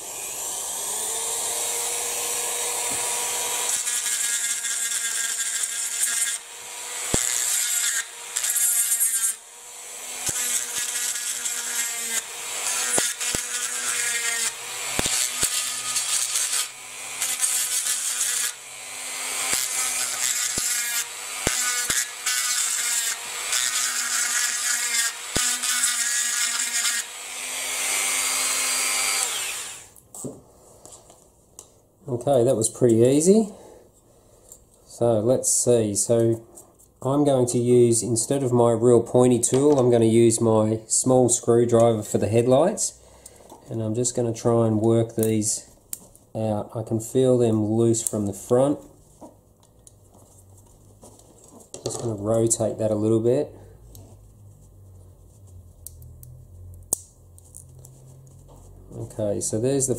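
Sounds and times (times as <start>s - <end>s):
rotary tool grinding: 0.2s - 29.9s.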